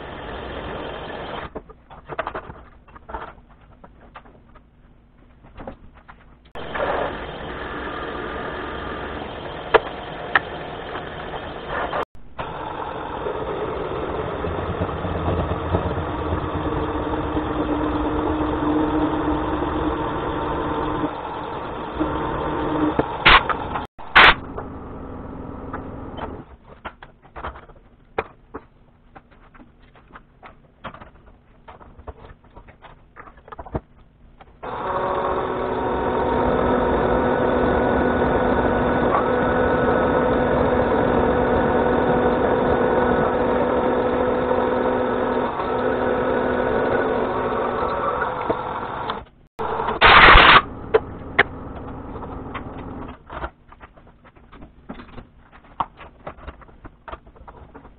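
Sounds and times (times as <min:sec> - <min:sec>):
milling machine spindle cutting steel: 0:34.6 - 0:53.0.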